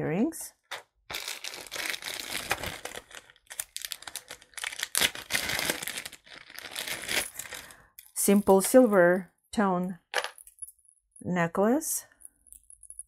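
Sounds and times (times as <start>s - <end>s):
plastic bag crinkling: 1.1s - 7.8s.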